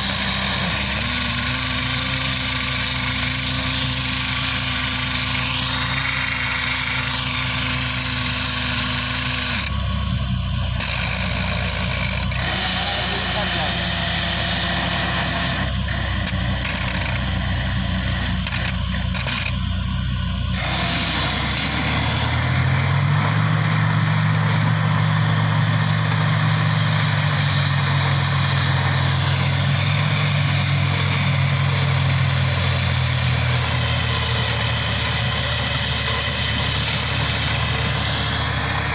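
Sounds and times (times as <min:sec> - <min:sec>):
compressor truck running: 0:00.0 - 0:38.9
drilling rig engine running: 0:00.0 - 0:38.9.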